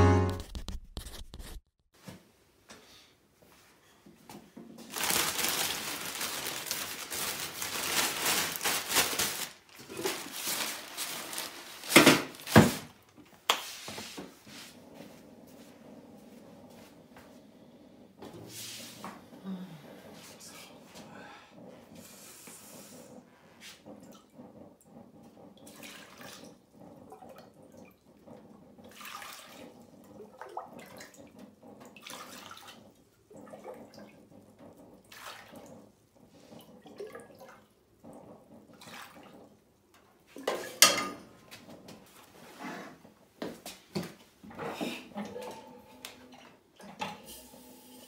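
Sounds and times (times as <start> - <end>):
water pouring and splashing: 4.9 - 12.9, 25.4 - 39.6.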